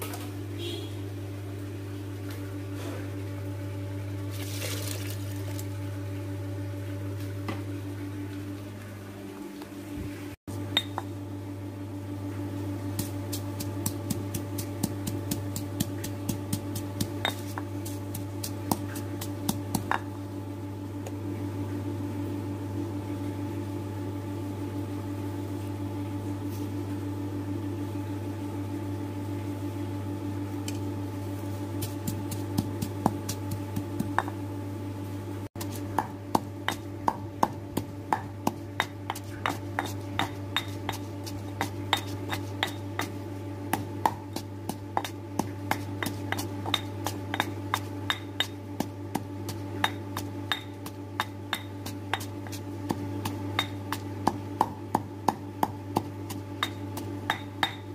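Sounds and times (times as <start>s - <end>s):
steady low hum: 0.0s - 57.9s
mortar and pestle pounding: 12.9s - 20.2s, 31.8s - 34.4s, 35.6s - 57.9s.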